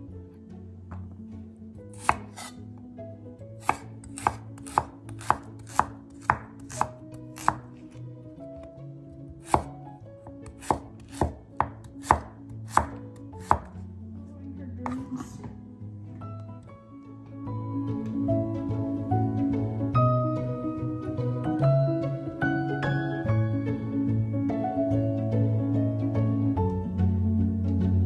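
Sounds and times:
knife striking wooden cutting board: 0:02.0 - 0:02.6, 0:03.6 - 0:07.7, 0:09.4 - 0:13.8.

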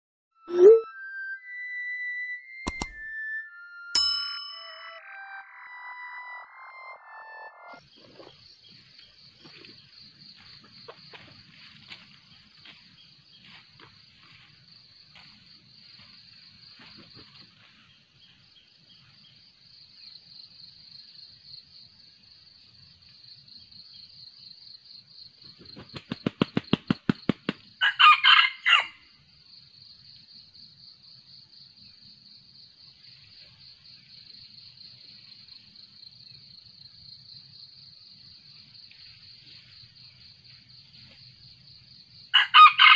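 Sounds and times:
high-pitched insect chorus: 0:07.8 - 0:26.7, 0:27.7 - 0:42.9
rooster wings flapping: 0:25.5 - 0:27.7
rooster crowing: 0:27.8 - 0:29.0, 0:42.3 - 0:42.9.

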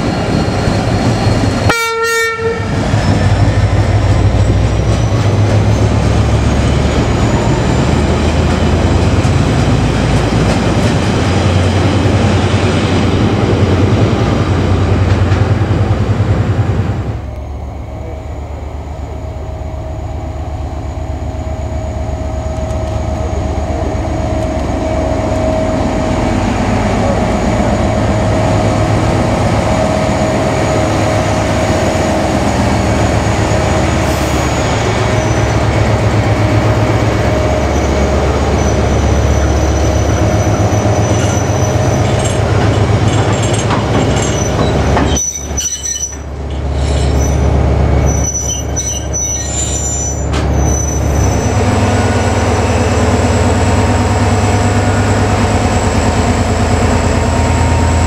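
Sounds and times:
diesel locomotive engine throbbing: 0:00.0 - 0:58.0
steady whine: 0:15.7 - 0:39.2.

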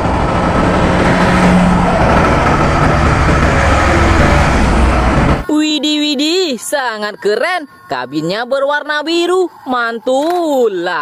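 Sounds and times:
diesel truck driving past: 0:00.0 - 0:05.5.

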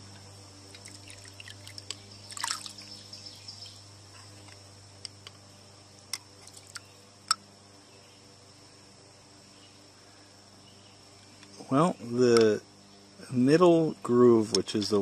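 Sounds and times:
crickets chirring: 0:00.0 - 0:15.0
water dripping and trickling: 0:00.7 - 0:03.0.

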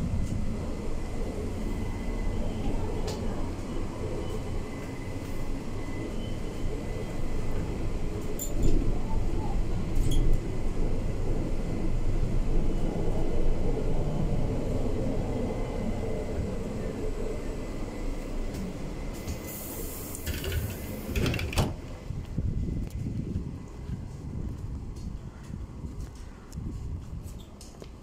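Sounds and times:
trolleybus rumbling and rattling: 0:00.0 - 0:28.0
compressed air hiss: 0:19.2 - 0:21.2
pneumatic doors knocking: 0:20.2 - 0:21.8.

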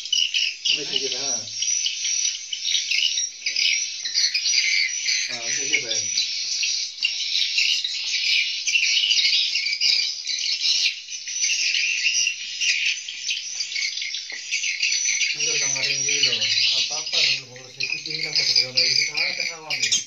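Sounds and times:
swiftlets twittering: 0:00.0 - 0:20.0
person speaking: 0:15.4 - 0:20.0.

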